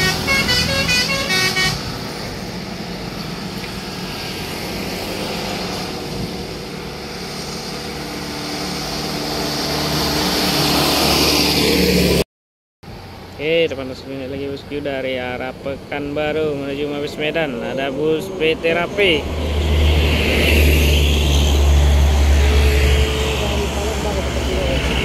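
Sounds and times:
musical horn melody: 0:00.0 - 0:02.0
road traffic noise: 0:00.0 - 0:25.0.

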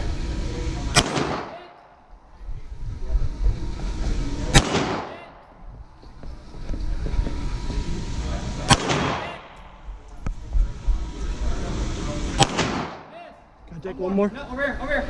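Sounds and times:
pistol shot echoing: 0:00.9 - 0:01.7, 0:04.5 - 0:05.4, 0:08.7 - 0:09.6, 0:12.4 - 0:13.1.

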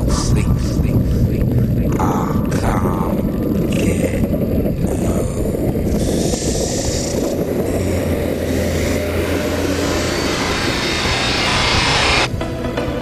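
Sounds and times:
low steady hum: 0:00.0 - 0:13.0
vehicle driving on snow: 0:04.8 - 0:13.0.

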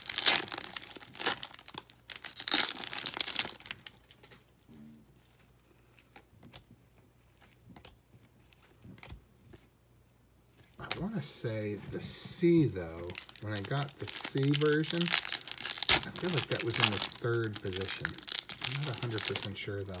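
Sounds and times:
card pack wrapper tearing: 0:00.0 - 0:04.4, 0:12.3 - 0:20.0
cards clicking and rustling: 0:05.4 - 0:09.7, 0:12.3 - 0:20.0.

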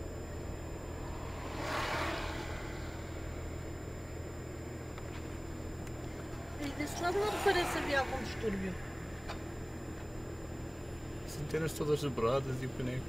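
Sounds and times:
car engine and road rumble: 0:00.0 - 0:13.0
rushing noise: 0:00.4 - 0:04.8, 0:05.4 - 0:10.2.

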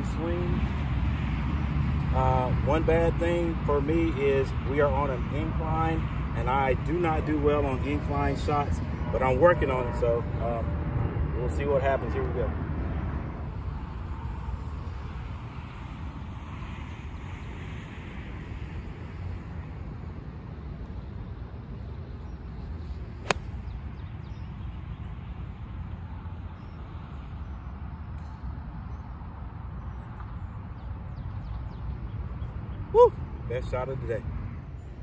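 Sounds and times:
golf club striking ball: 0:23.2 - 0:23.7.

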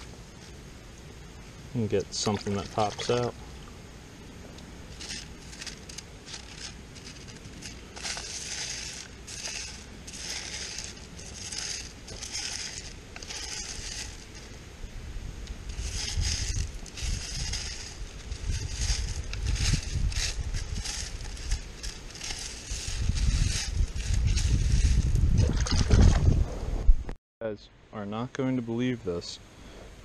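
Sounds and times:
gravel rattling on mesh screen: 0:01.8 - 0:03.4, 0:04.9 - 0:14.6, 0:15.5 - 0:26.3.

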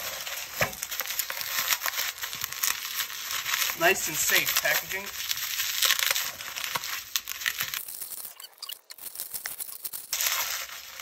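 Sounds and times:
bubble wrap crinkling and rustling: 0:00.0 - 0:11.0.

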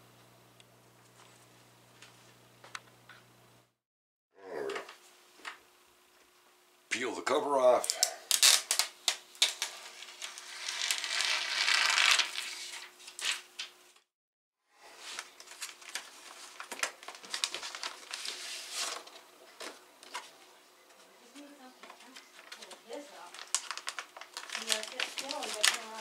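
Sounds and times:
plastic film being peeled off: 0:07.8 - 0:13.7, 0:15.0 - 0:19.2, 0:22.2 - 0:26.0
paper and plastic rustling: 0:07.8 - 0:13.8, 0:15.0 - 0:20.5, 0:21.3 - 0:26.0.

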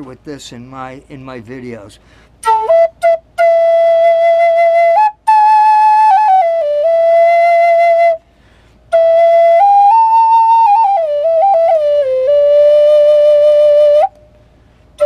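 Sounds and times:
wooden flute melody: 0:02.4 - 0:14.4.

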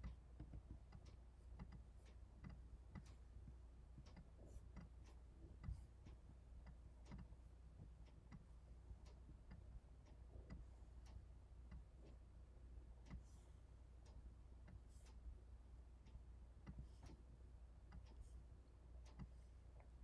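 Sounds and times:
computer mouse clicks: 0:00.0 - 0:03.2, 0:06.6 - 0:09.7
low steady hum: 0:00.0 - 0:20.0.

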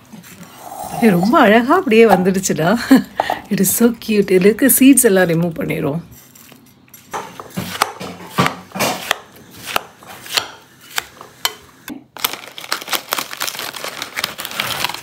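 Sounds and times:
knife chopping watermelon in bowl: 0:07.1 - 0:11.7
plastic snack packet crackling: 0:12.1 - 0:15.0.

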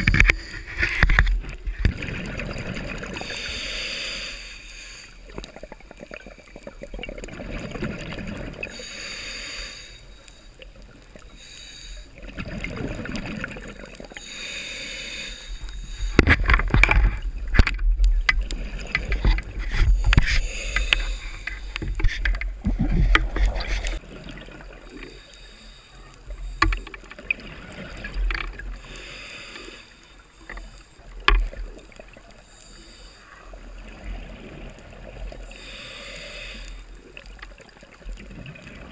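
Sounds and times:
regulator inhale hiss: 0:00.0 - 0:01.1, 0:03.2 - 0:05.4, 0:08.6 - 0:10.6, 0:11.2 - 0:12.3, 0:14.2 - 0:16.6, 0:19.7 - 0:22.2, 0:24.9 - 0:27.2, 0:28.6 - 0:31.0, 0:32.3 - 0:33.6, 0:35.3 - 0:37.3
exhaled bubbles rumbling: 0:00.0 - 0:03.4, 0:05.3 - 0:08.8, 0:12.2 - 0:14.2, 0:15.6 - 0:25.0
knocks and rattles of speargun: 0:26.6 - 0:27.0.

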